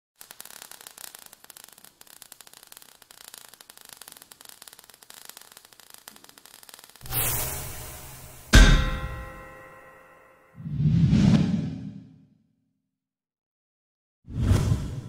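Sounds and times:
faint hiss: 0.2s - 8.5s
crackling sparks: 0.2s - 10.0s.

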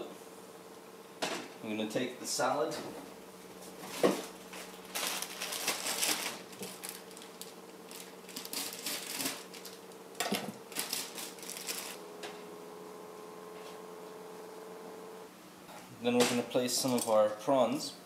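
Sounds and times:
faint steady hum: 0.0s - 18.0s
salad leaves rustling: 3.6s - 12.0s.

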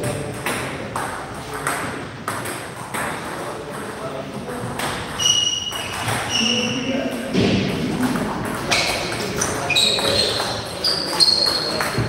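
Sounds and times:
table tennis balls clicking: 0.0s - 4.0s, 8.0s - 12.0s
short high squeaks: 5.2s - 6.8s, 9.6s - 11.9s.

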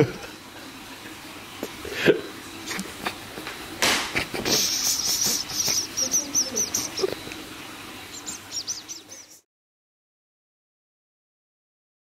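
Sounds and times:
small animal chirping: 4.6s - 9.4s.

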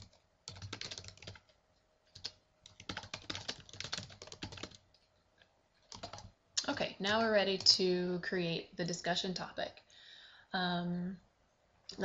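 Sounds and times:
computer keyboard typing: 0.0s - 5.0s, 5.8s - 6.3s.

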